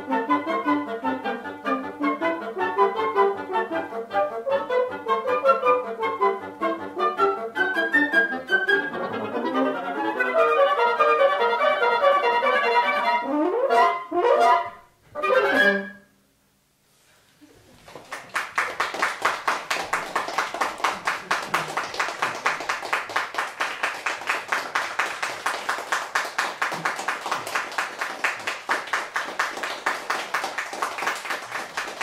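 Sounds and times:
audience applauding: 17.8 - 32.0.

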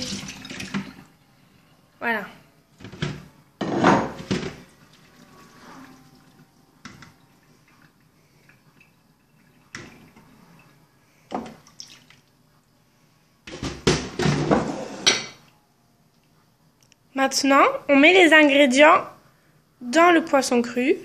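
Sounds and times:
juice dripping from colander: 11.4 - 12.4.

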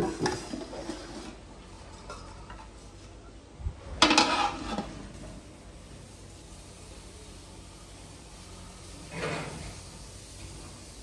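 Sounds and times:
metal lid clattering on pot: 4.0 - 4.9.

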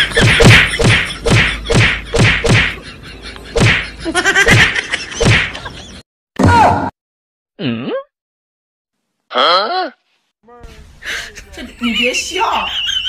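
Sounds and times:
punch and slap hits: 0.2 - 2.8, 3.6 - 3.9, 4.6 - 5.6.

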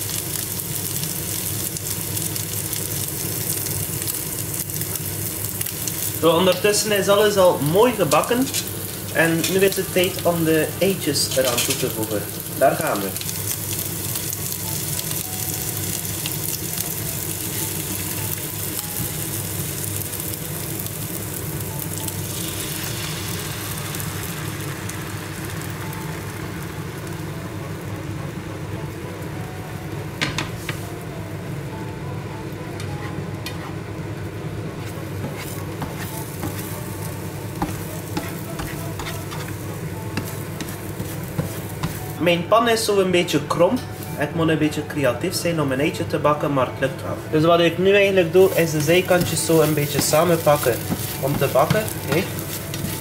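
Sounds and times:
eggs sizzling in a frying pan: 0.0 - 31.4, 32.9 - 43.0, 47.2 - 53.0
spatula scraping and tapping pan: 34.8 - 36.7, 37.6 - 39.6, 40.2 - 42.1, 48.8 - 53.0.

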